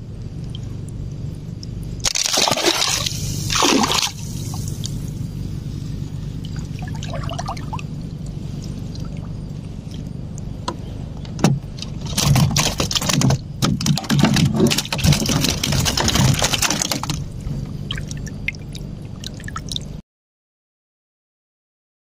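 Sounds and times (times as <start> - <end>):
steady low hum: 0.0 - 20.0
handling noise: 9.8 - 17.9
water splashing and knocking: 11.4 - 17.3.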